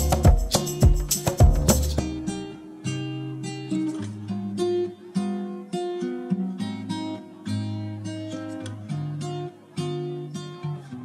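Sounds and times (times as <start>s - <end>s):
bass line: 0.0s - 2.2s
acoustic guitar plucked notes: 0.0s - 11.0s.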